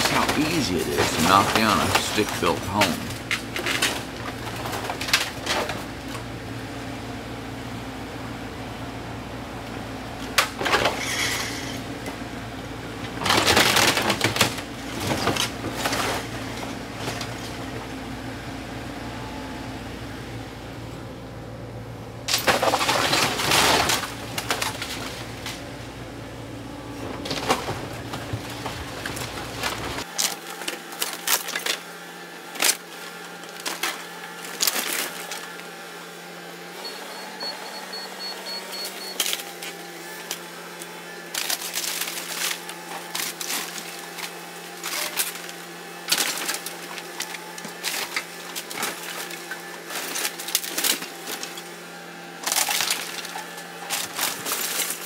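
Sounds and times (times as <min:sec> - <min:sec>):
lumber cracking and debris crashing: 0:00.0 - 0:06.3, 0:13.0 - 0:17.8, 0:22.3 - 0:25.8, 0:27.0 - 0:31.8, 0:33.5 - 0:35.4, 0:41.4 - 0:51.7, 0:52.4 - 0:55.0
machine engine hum: 0:00.0 - 0:55.0.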